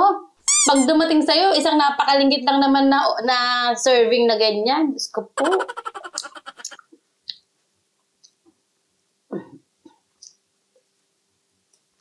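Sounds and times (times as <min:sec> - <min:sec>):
short throat sound: 0:05.4 - 0:06.8.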